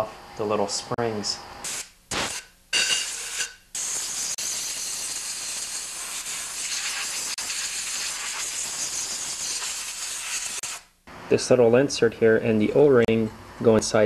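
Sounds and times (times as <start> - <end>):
compressed air blow gun hissing: 3.0 - 10.9.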